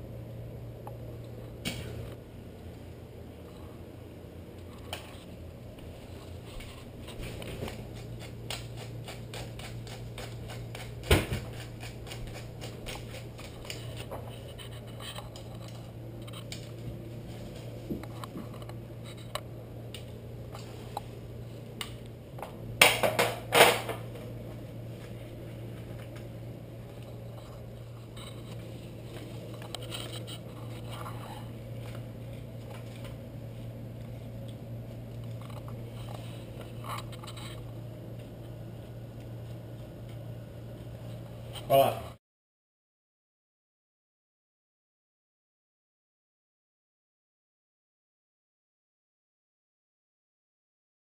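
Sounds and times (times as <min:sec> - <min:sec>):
steady low hum: 0:00.0 - 0:42.2
pepper mill grinding: 0:07.4 - 0:16.5.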